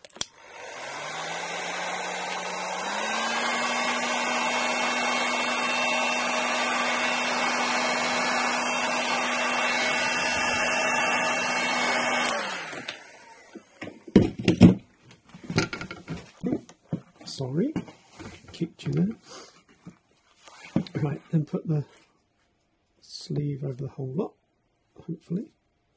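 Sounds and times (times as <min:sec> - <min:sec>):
heat gun blowing hot air: 0:00.0 - 0:13.8.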